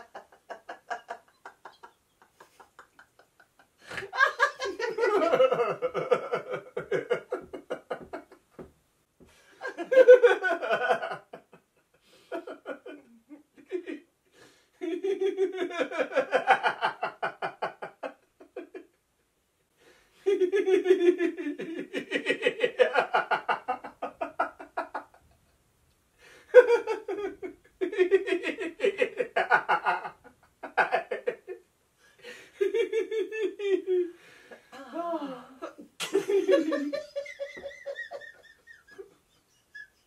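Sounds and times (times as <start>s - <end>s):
man and woman laughing: 0.0s - 8.4s, 9.6s - 14.0s, 32.6s - 40.0s.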